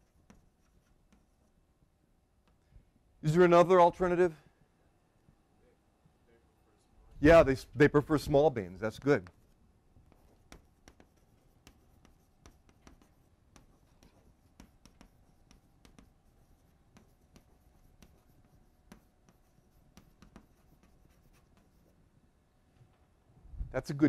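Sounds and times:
pen scratching while writing: 0:00.0 - 0:01.6, 0:08.8 - 0:22.0.

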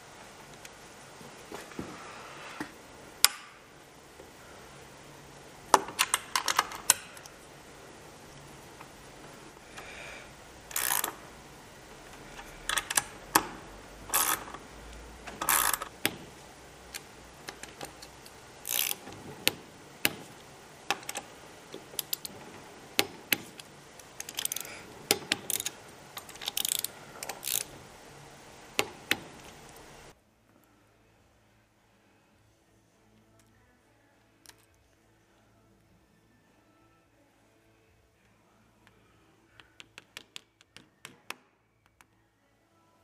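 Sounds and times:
ratchet clicking on metal: 0:10.7 - 0:11.2, 0:12.4 - 0:14.6, 0:15.4 - 0:15.9, 0:16.9 - 0:19.1, 0:24.2 - 0:27.7.

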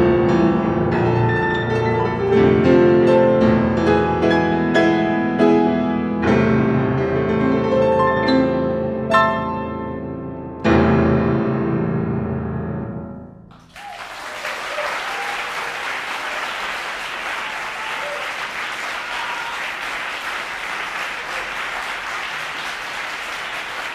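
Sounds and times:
piano chord: 0:00.0 - 0:13.6
audience applause: 0:13.5 - 0:23.9.

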